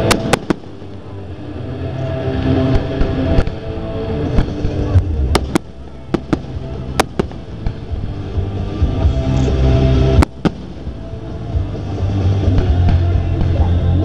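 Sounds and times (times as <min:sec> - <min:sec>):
firework bang: 0:00.0 - 0:01.0, 0:04.3 - 0:08.2, 0:10.1 - 0:11.0
music with heavy bass: 0:00.0 - 0:14.0.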